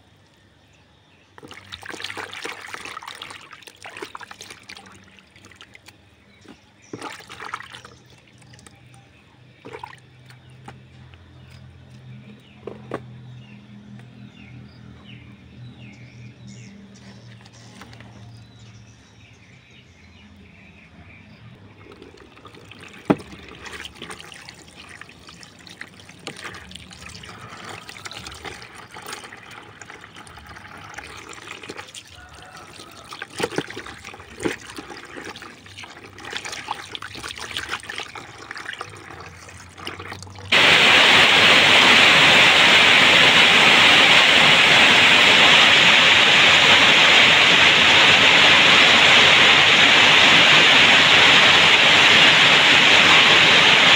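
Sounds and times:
water splashing and dripping: 0:01.4 - 0:13.2, 0:21.7 - 0:53.9
loud steady rushing hiss: 0:40.5 - 0:53.9.

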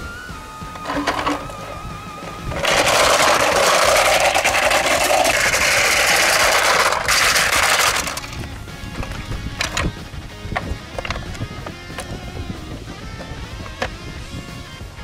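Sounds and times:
toy truck rattling down roller slide: 0:00.8 - 0:08.4.

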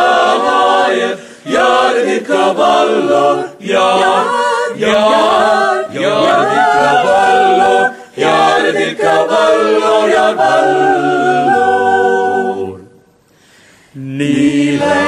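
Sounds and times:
group singing a cappella: 0:00.0 - 0:15.0.

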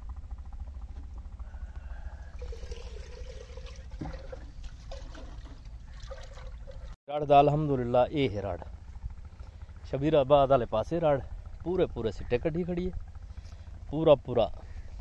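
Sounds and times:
water poured and splashed: 0:02.4 - 0:07.0
steady low rumble: 0:03.8 - 0:15.0.

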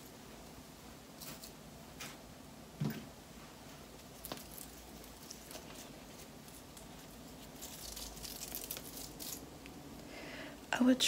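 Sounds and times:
velcro rollers crackling and rustling: 0:04.0 - 0:09.5.

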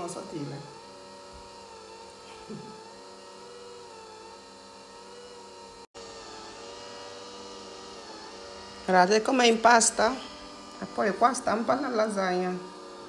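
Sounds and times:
pasta maker motor hum: 0:00.0 - 0:13.0.

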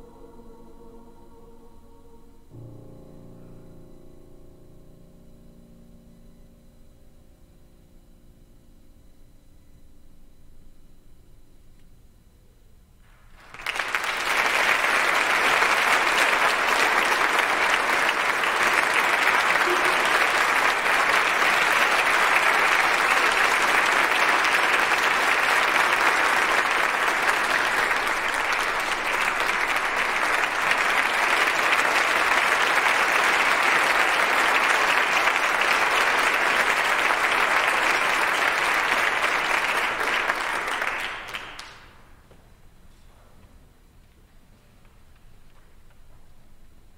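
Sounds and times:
audience applauding: 0:13.2 - 0:42.2.

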